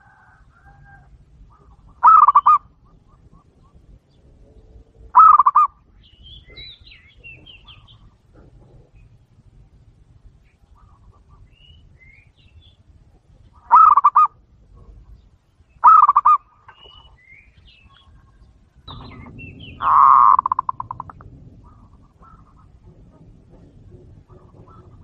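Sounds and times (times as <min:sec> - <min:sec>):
dove cooing: 0:00.0 - 0:03.9, 0:04.8 - 0:05.8, 0:13.6 - 0:15.1, 0:15.8 - 0:17.0, 0:17.9 - 0:25.0
small birds chirping: 0:01.5 - 0:22.8.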